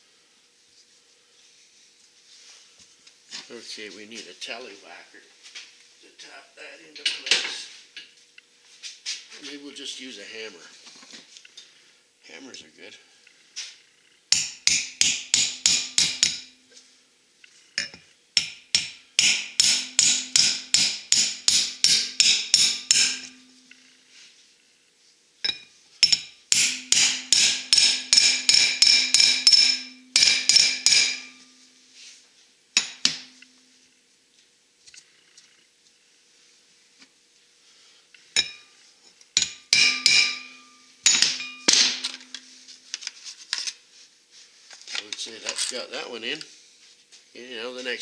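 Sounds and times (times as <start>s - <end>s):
hammer blows ringing on metal: 14.3s - 16.6s, 18.4s - 23.7s, 25.5s - 31.7s, 39.4s - 42.6s.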